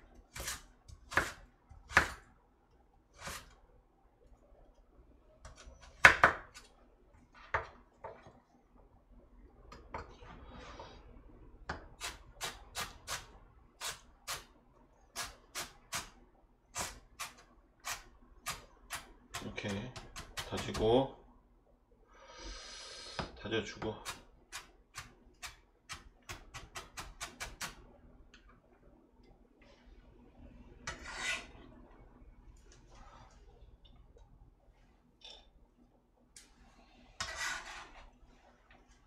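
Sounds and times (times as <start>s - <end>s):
knife chopping on cutting board: 0.4s - 2.2s.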